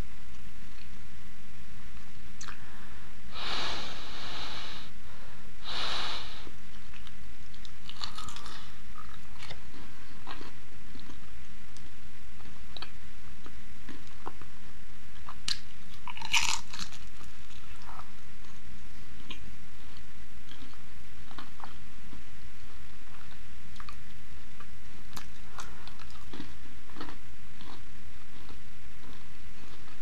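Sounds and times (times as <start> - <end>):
crunchy biting and chewing: 5.6 - 14.5, 15.2 - 30.0.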